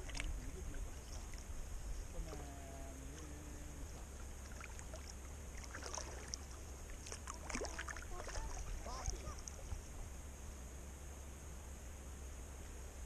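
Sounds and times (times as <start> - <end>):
paddle splashing water: 0.0 - 10.1
steady low rumble: 0.0 - 13.0
faint distant voice: 2.1 - 4.0, 7.3 - 9.8.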